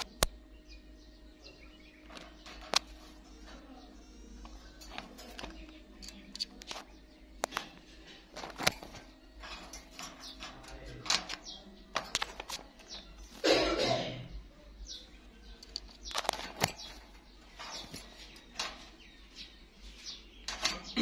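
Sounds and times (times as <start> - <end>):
sharp clicks and taps: 4.4 - 13.2.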